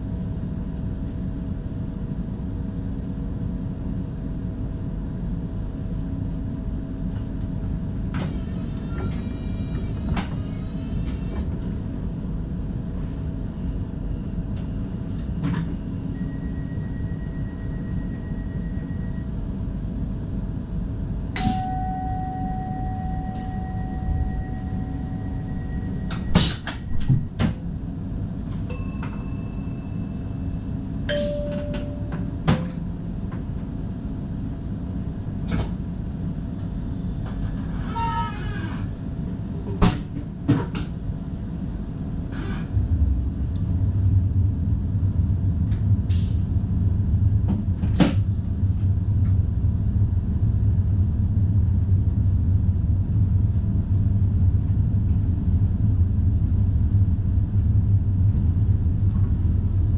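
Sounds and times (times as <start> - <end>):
train cab low rumble: 0.0 - 59.9
short ringing tones: 21.4 - 26.2.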